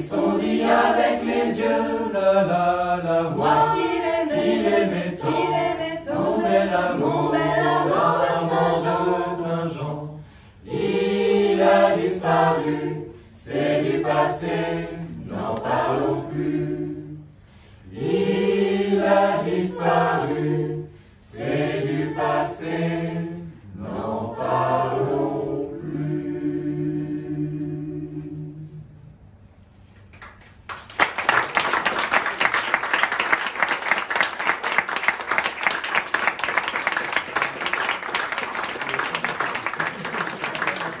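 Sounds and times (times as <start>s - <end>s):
choir singing: 0.0s - 29.2s
audience applause: 30.2s - 41.0s.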